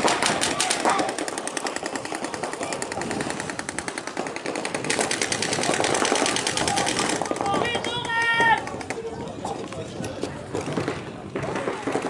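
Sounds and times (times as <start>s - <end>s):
paintball markers firing: 0.0s - 9.2s.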